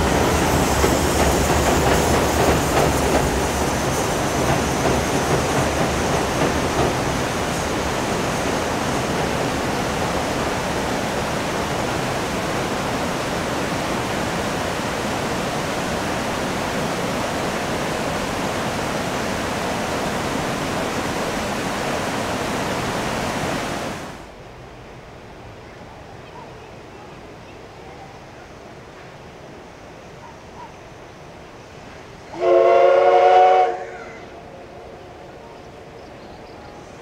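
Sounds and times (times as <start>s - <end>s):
river water rushing: 0.0s - 26.1s.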